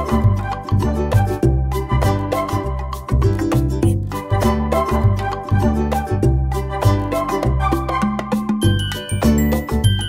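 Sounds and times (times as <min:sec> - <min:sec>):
bass notes: 0:00.0 - 0:10.0
percussion: 0:00.0 - 0:10.0.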